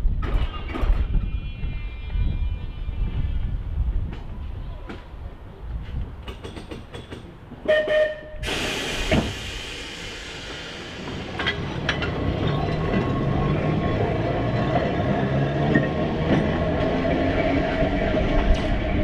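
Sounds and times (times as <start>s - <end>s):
tram rumble: 0.0s - 19.0s
tram wheels clicking over rails: 6.2s - 7.6s, 8.4s - 19.0s.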